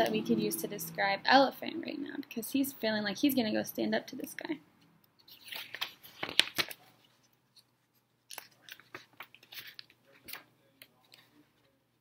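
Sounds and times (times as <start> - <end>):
paper pages turning: 5.2 - 11.8.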